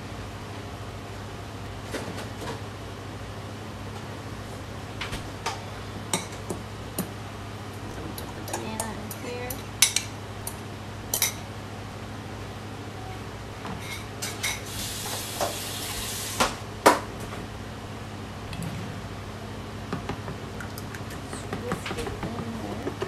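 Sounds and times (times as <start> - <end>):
steady low hum: 0.0 - 23.0
dishes and utensils clinking: 11.1 - 11.4.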